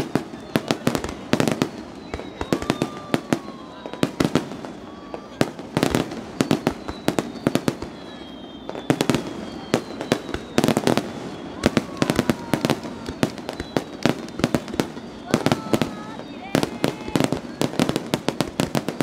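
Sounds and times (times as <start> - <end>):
firework shells bursting: 5.5 - 19.0.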